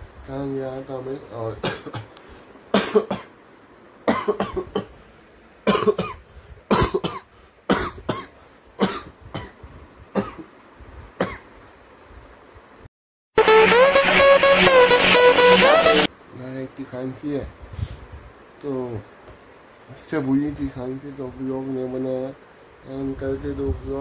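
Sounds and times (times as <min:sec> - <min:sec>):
man coughing: 0:01.6 - 0:02.1, 0:02.8 - 0:03.3, 0:04.1 - 0:04.9, 0:05.7 - 0:09.6, 0:10.2 - 0:10.5, 0:11.2 - 0:11.4
loud music: 0:13.4 - 0:16.1.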